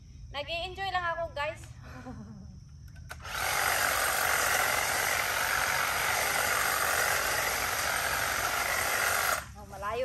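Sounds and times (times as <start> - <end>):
hedge trimmer cutting foliage: 3.1 - 9.6.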